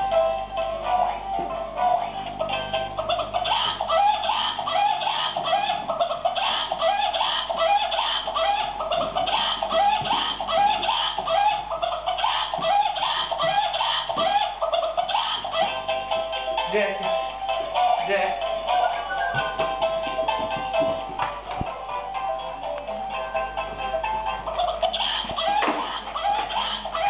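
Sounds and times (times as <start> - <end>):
toy electronic clucking: 1.8 - 16.4, 24.5 - 27.0.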